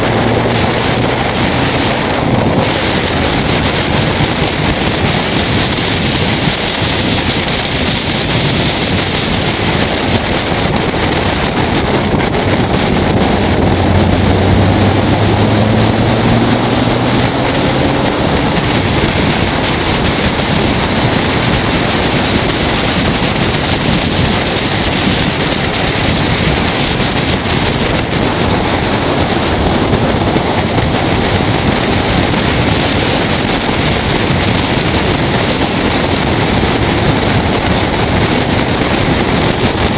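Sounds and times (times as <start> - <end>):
car engine running: 0.0 - 39.9
heavy wind rush: 0.0 - 39.9.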